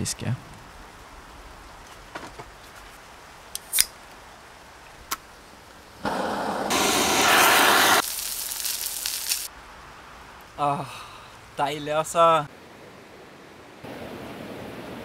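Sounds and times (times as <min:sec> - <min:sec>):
sausages sizzling in a frying pan: 0:06.7 - 0:09.5.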